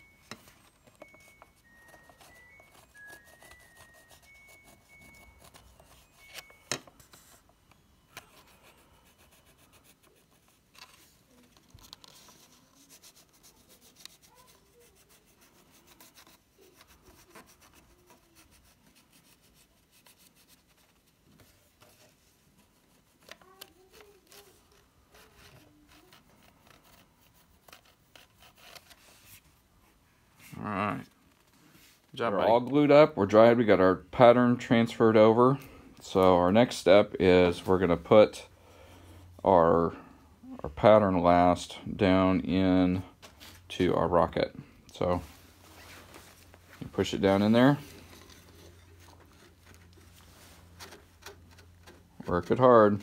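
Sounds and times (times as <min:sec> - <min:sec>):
pencil scratching on paper: 0:01.1 - 0:06.2, 0:08.2 - 0:10.6, 0:12.0 - 0:21.2, 0:21.9 - 0:29.4.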